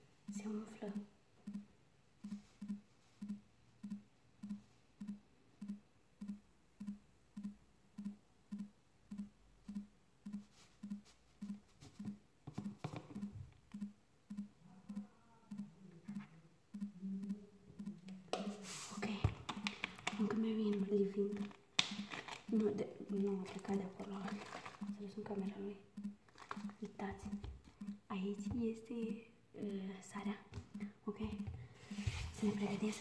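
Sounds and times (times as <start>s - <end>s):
salt rustling into plastic bottle: 21.8s - 22.5s, 23.6s - 24.9s, 26.3s - 26.8s.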